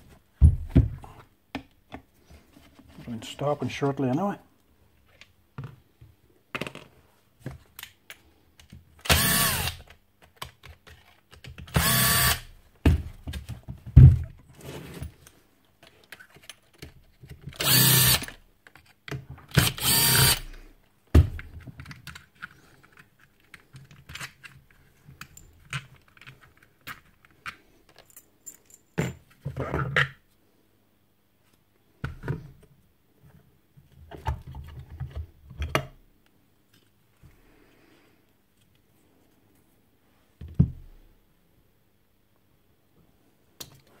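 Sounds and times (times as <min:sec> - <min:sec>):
clicks and knocks of handling drill: 0:07.5 - 0:12.4, 0:15.2 - 0:20.5
drill motor whining: 0:09.1 - 0:09.8, 0:11.8 - 0:12.4, 0:17.6 - 0:18.3, 0:19.6 - 0:20.5.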